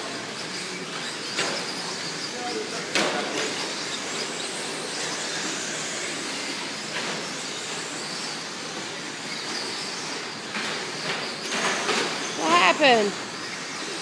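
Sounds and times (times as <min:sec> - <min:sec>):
rc trucks motor whine: 0:00.0 - 0:14.0.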